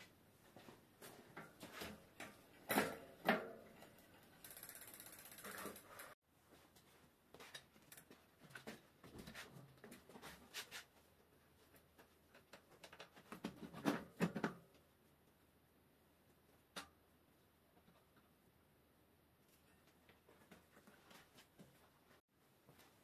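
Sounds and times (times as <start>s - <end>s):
bike freehub ratcheting: 3.8s - 6.2s.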